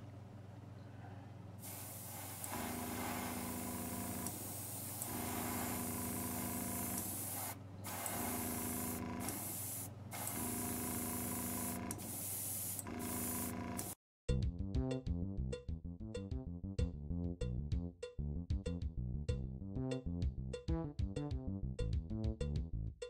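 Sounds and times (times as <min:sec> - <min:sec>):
airbrush spraying hiss: 0:01.6 - 0:14.0.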